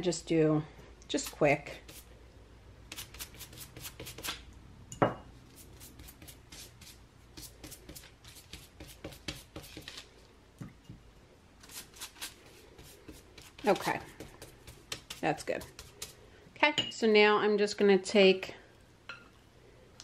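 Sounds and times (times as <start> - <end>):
pastry brush brushing: 1.2 - 2.1, 5.4 - 10.2, 11.6 - 16.3.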